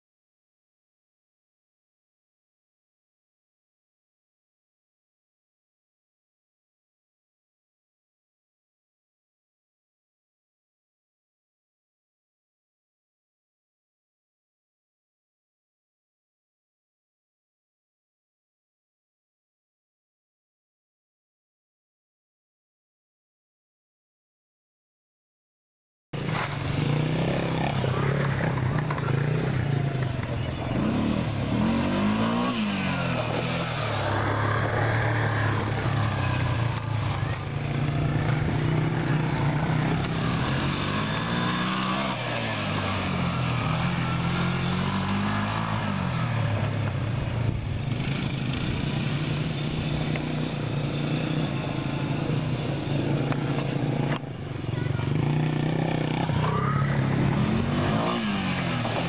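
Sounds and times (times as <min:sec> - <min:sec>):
small off-road engines revving: 0:26.2 - 0:59.0.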